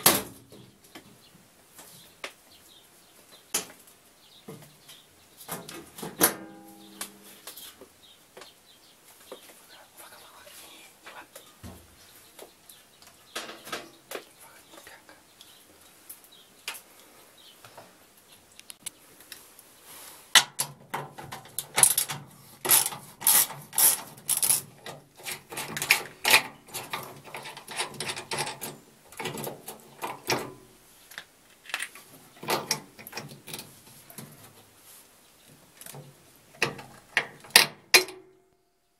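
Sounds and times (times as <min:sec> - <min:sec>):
ratchet wrench clicking: 0:22.7 - 0:24.6.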